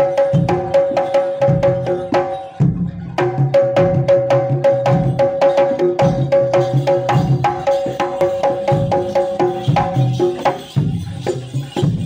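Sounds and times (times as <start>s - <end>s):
drums: 0.0s - 12.0s.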